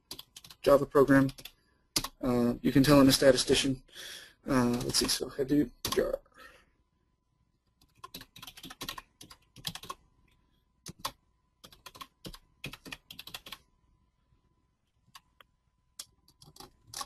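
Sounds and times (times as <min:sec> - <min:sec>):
typing on computer keyboard: 0:00.0 - 0:00.6, 0:01.2 - 0:02.2, 0:05.8 - 0:06.2, 0:07.8 - 0:10.0, 0:10.8 - 0:13.6, 0:16.0 - 0:17.0.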